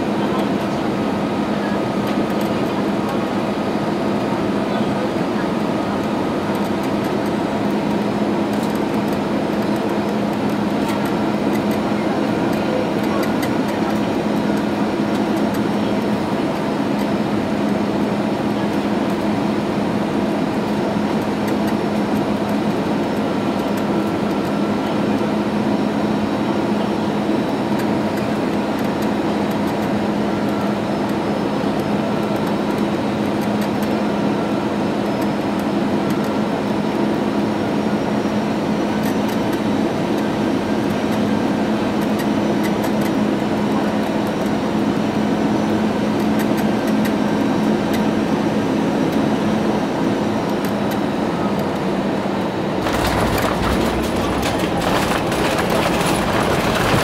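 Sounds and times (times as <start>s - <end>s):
jet engine and airflow drone: 0.0s - 57.0s.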